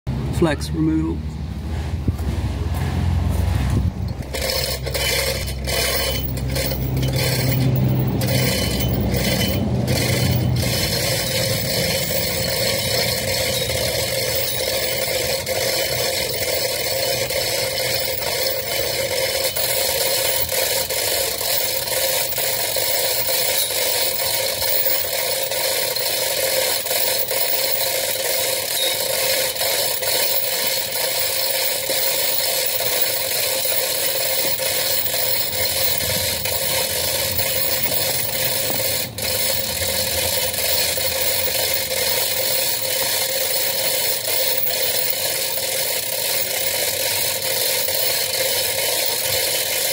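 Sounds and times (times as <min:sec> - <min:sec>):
chain hoist ratchet clicking: 0:03.6 - 0:49.9.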